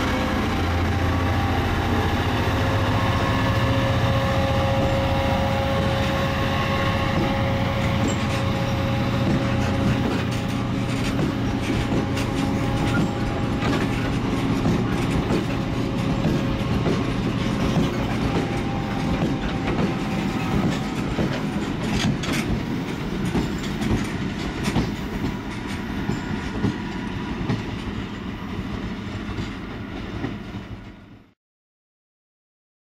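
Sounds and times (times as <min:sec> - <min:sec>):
freight train rolling past: 0:00.0 - 0:31.4
wheels clicking over rail joints: 0:07.1 - 0:28.2.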